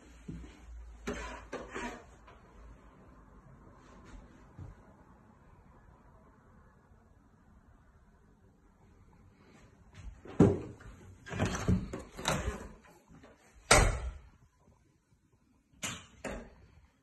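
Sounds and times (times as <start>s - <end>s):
door banging shut: 13.7s - 14.2s.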